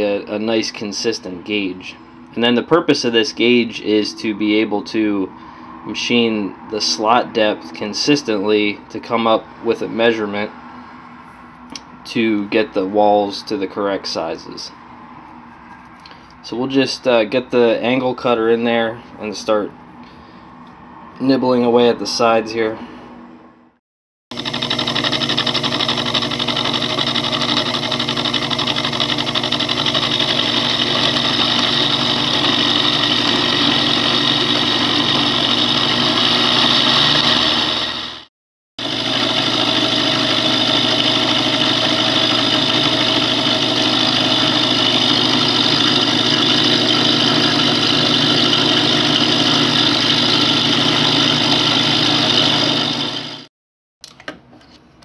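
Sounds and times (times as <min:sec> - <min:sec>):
metal cutting noise: 0:24.3 - 0:53.5
milling machine motor whine: 0:24.3 - 0:53.5.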